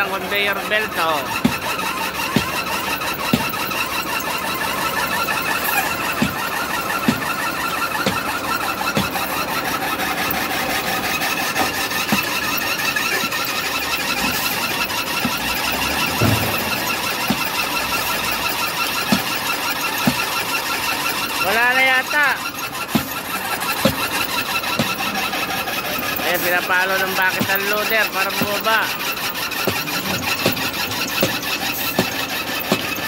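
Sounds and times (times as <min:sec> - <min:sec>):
conveyor belt squealing: 0:00.0 - 0:33.0
engine running: 0:00.0 - 0:33.0.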